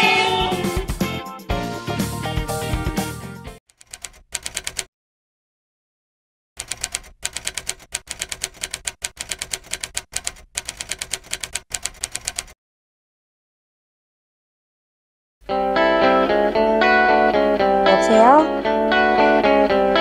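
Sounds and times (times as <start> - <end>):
typewriter keys clacking: 3.7 - 4.9, 6.6 - 12.6.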